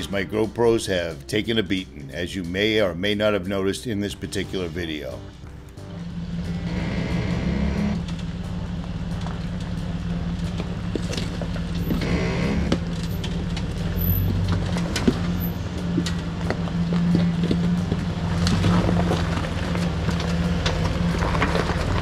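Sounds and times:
engine running at low revs: 5.5s - 22.0s
creaking squeals: 6.5s - 8.2s, 11.2s - 16.3s.

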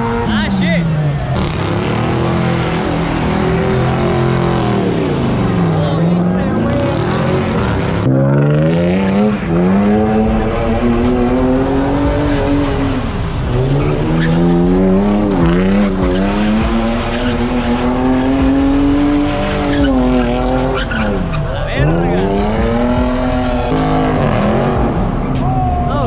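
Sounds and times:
car engine revving: 0.0s - 26.0s
tyres squealing: 13.6s - 24.8s.

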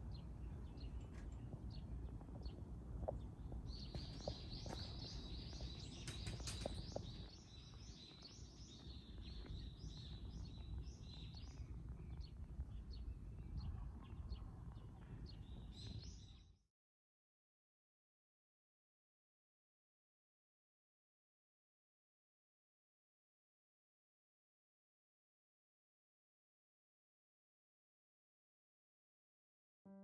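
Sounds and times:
faint low rumble: 0.0s - 16.5s
small birds chirping: 0.0s - 16.6s.

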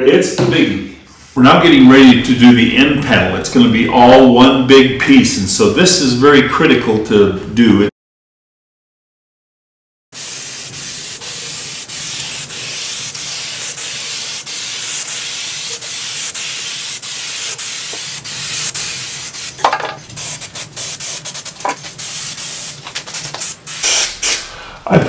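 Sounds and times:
aerosol can spraying: 10.2s - 24.5s.

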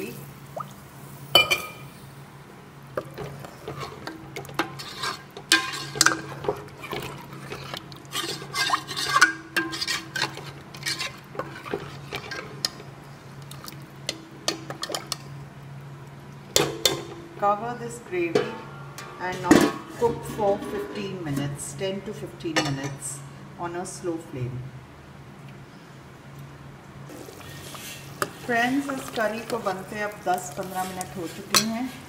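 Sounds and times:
metal ladle scraping a pot: 3.2s - 12.9s, 27.1s - 32.0s.

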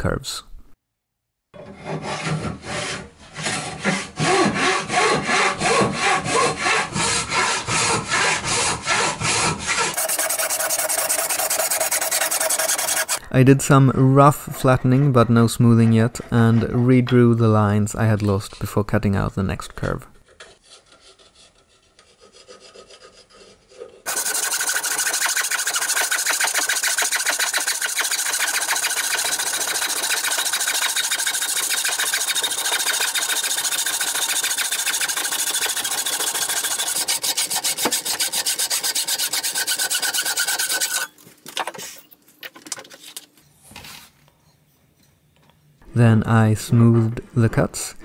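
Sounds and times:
saw cutting wood: 1.6s - 13.2s, 20.6s - 41.2s.

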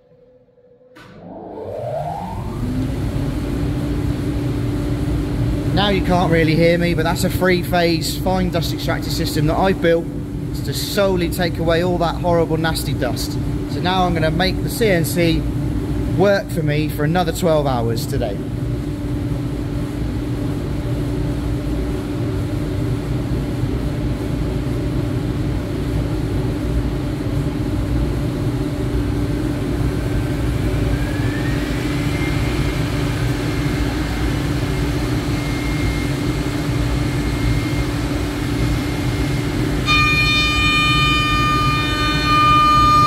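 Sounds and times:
router machine high whine: 0.0s - 4.5s, 29.7s - 43.0s
dust extractor humming: 1.0s - 18.0s, 28.9s - 43.0s.

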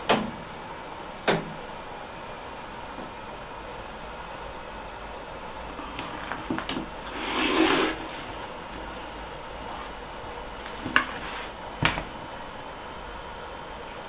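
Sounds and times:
rotary cutter rasping through fabric: 7.1s - 8.1s.

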